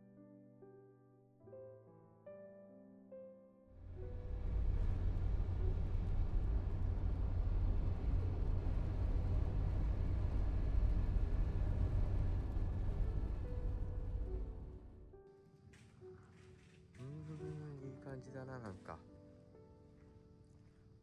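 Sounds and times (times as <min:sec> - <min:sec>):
road and engine rumble in car: 0:03.8 - 0:14.7.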